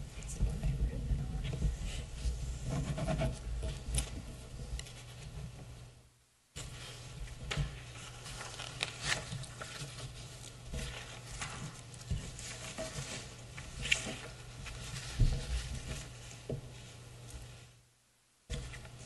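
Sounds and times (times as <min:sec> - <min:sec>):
steady low hum: 0:00.0 - 0:19.0
paper rustling and pages turning: 0:06.6 - 0:17.7.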